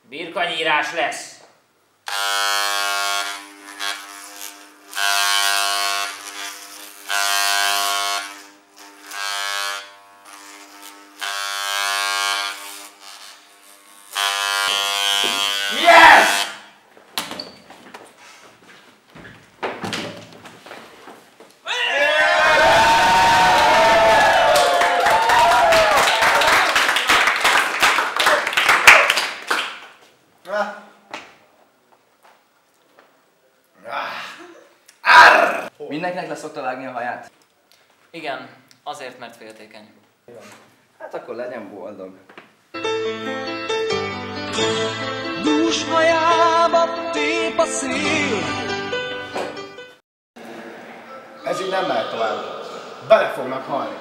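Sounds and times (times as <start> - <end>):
electric hair clippers buzzing: 2.1 - 16.7
people cheering and shouting: 21.7 - 26.8, 50.4 - 54.0
people clapping: 22.6 - 30.0.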